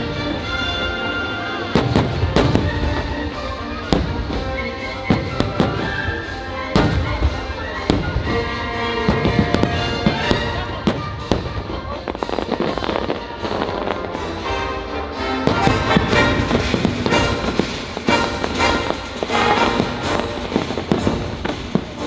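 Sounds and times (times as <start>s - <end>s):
fireworks bursting: 0.0s - 22.0s
patriotic show music: 0.0s - 22.0s.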